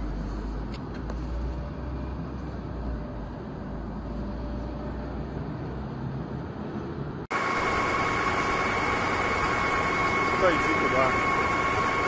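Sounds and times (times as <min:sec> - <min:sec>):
loud steady roar: 0:04.8 - 0:12.0
high steady tone: 0:07.3 - 0:12.0.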